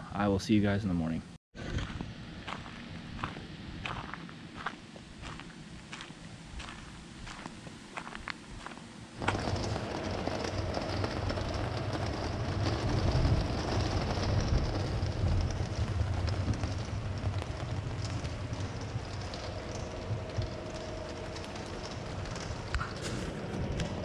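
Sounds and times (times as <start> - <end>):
steady low rumble: 1.6 - 24.0
heavy rain on canvas: 9.2 - 24.0.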